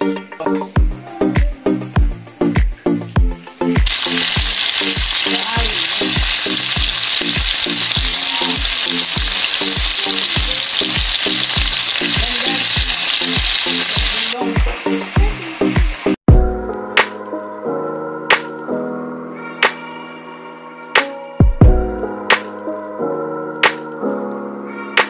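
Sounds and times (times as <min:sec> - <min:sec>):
background music with steady beat: 0:00.0 - 0:06.4, 0:14.4 - 0:25.0
fish frying in hot oil: 0:03.8 - 0:16.2.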